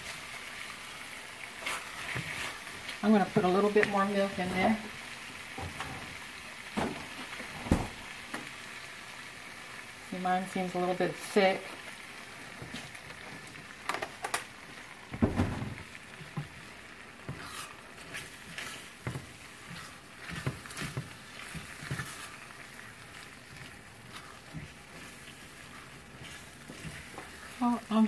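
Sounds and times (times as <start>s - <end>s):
corn sizzling in a skillet: 0.0s - 28.0s
spatula scraping and knocking pan: 1.6s - 4.8s, 17.2s - 28.0s
low thump: 15.2s - 15.8s.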